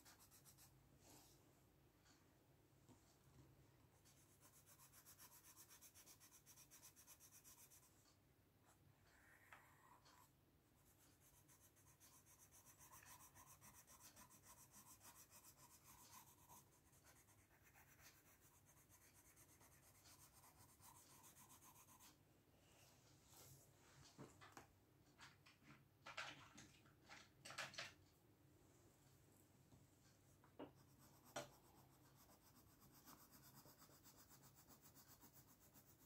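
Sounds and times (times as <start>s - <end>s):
pencil scratching on paper: 0.0s - 0.8s, 4.0s - 22.2s, 30.6s - 36.0s.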